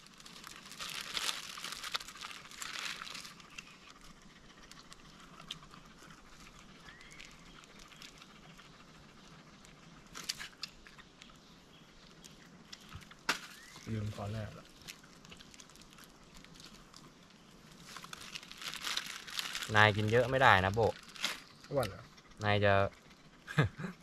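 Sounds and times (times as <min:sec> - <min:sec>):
crinkling rustling: 0:00.0 - 0:11.4, 0:12.0 - 0:21.8.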